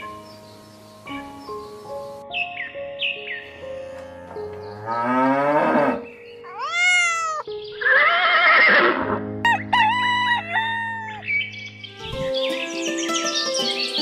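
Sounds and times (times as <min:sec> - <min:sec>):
background music: 0:00.0 - 0:14.0
drawn-out animal calls: 0:06.5 - 0:08.8.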